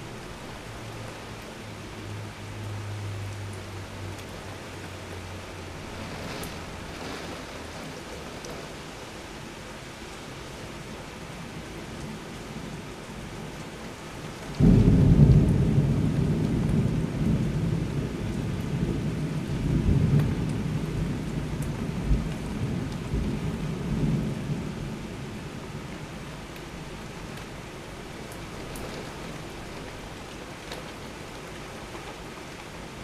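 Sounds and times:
steady rain: 0.0 - 33.0
thunder clap and rumble: 14.5 - 25.2.

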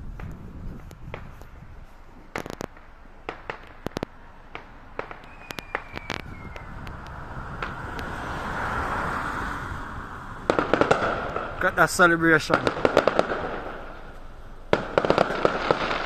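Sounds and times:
firework bangs and crackles: 0.0 - 1.6, 2.2 - 16.0
falling firework whistle: 5.0 - 7.8.

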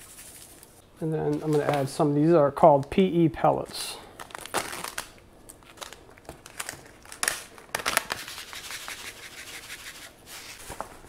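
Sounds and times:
plastic pouch rustling: 4.2 - 8.7.

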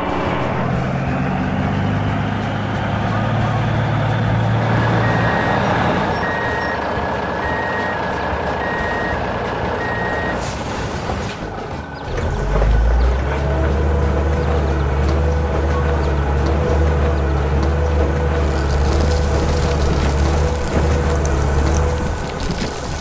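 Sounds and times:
truck engine running: 0.0 - 23.0
reversing alarm beeping: 4.9 - 10.6.

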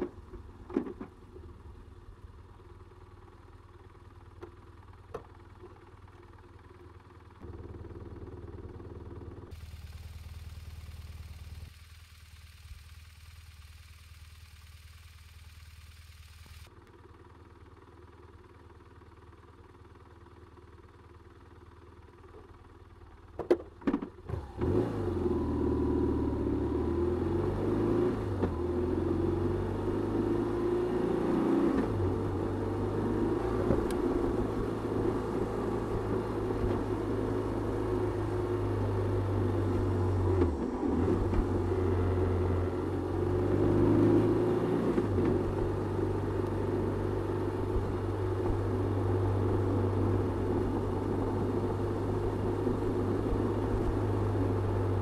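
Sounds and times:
motorcycle engine accelerating: 7.3 - 16.9, 24.3 - 55.0.

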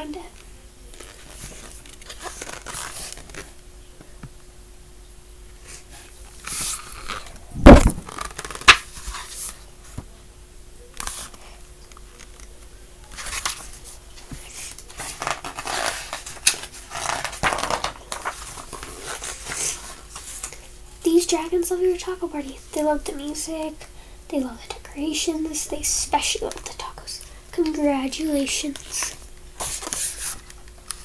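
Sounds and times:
book pages rustling: 0.9 - 3.6, 6.4 - 10.0, 13.1 - 20.6, 28.6 - 31.0
sharp bump: 7.6 - 8.2.

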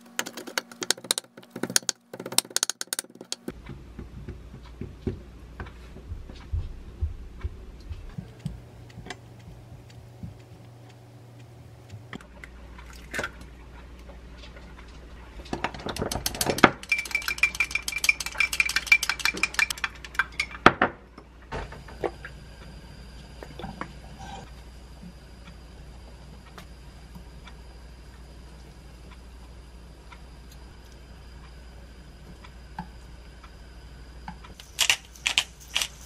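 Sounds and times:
chopsticks beating egg in glass: 0.2 - 3.5, 16.0 - 20.6.

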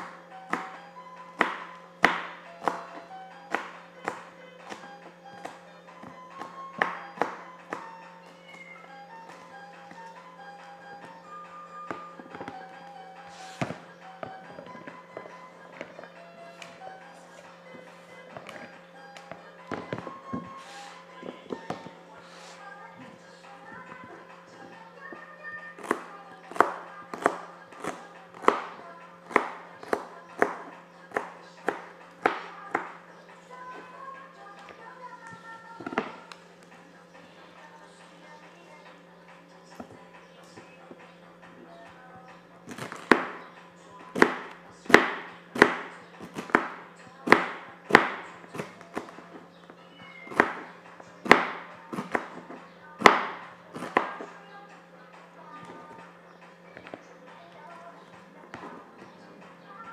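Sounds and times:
knife chopping on cutting board: 1.4 - 8.0, 25.8 - 32.9, 42.7 - 43.4, 44.1 - 49.2, 50.2 - 54.2.

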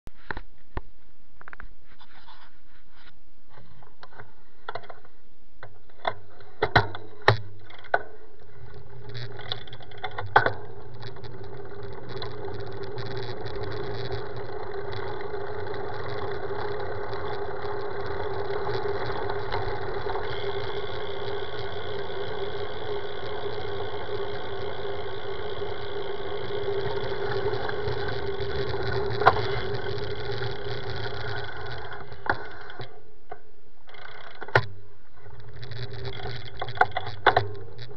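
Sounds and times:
bike tyres rolling on asphalt: 7.6 - 33.0, 33.9 - 37.9.

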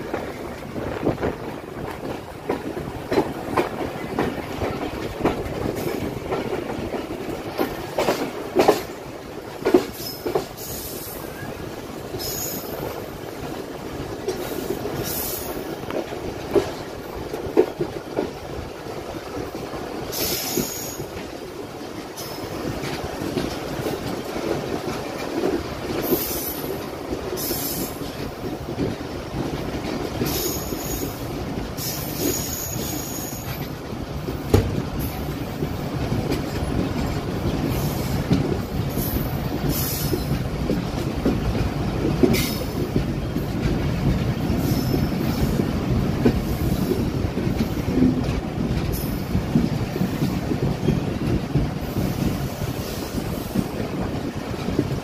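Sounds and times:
train wheels rumbling on rail: 0.0 - 55.0
wheels clacking over rail joints: 0.0 - 55.0.

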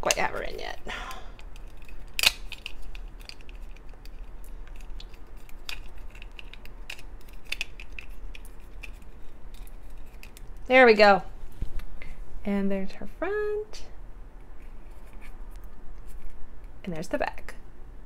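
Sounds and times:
plastic toy pieces clicking and scraping: 1.4 - 10.5.

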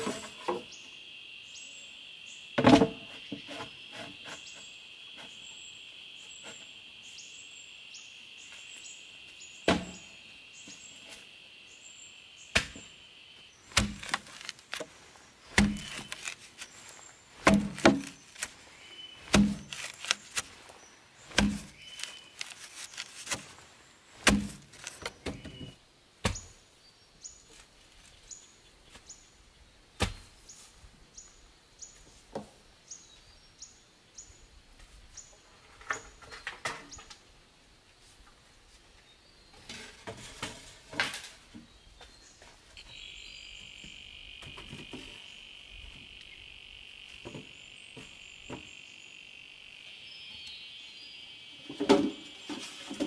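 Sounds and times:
high insect drone: 0.0 - 14.7, 42.9 - 53.0
faint chirps: 0.0 - 17.5, 41.9 - 53.0
dull thuds of pole into earth: 15.5 - 16.1, 17.4 - 18.2, 19.2 - 19.8, 21.3 - 21.8, 24.2 - 25.6
loud bamboo knock: 17.4 - 18.1, 19.3 - 19.6.

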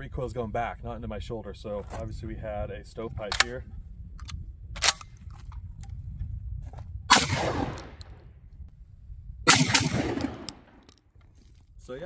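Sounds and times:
shotgun shots with echo: 7.1 - 8.1, 9.5 - 10.8.

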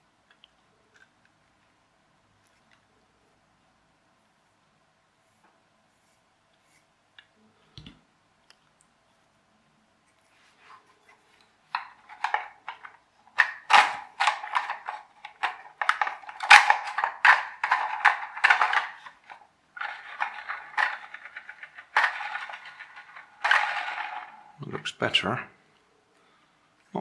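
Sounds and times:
plastic toy truck clicking and rattling: 11.7 - 24.6.

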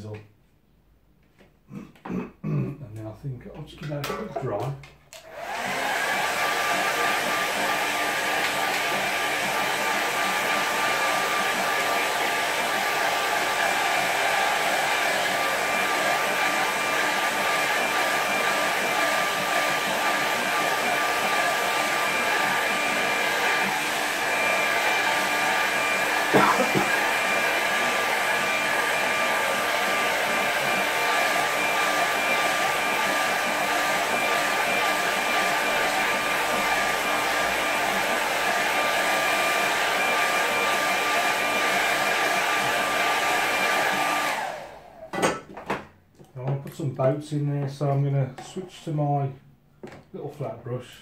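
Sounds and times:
hair dryer blowing air: 4.4 - 45.4.

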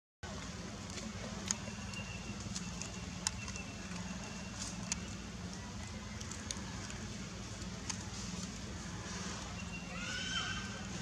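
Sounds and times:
sharp clicks and crackles: 0.4 - 8.6.

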